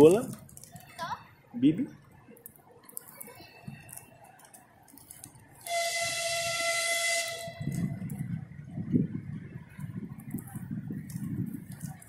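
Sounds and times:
low rumbling noise: 0:05.0 - 0:12.0
horn blast with hiss: 0:05.7 - 0:07.7.

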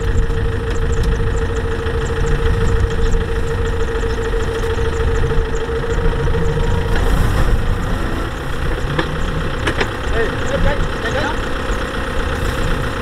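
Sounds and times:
steady whine: 0:00.0 - 0:13.0
tractor diesel engine running: 0:00.0 - 0:13.0.

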